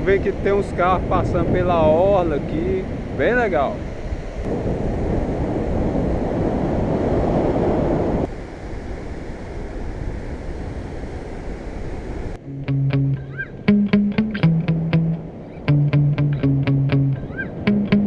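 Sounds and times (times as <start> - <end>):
wind buffeting microphone: 0.0 - 12.4.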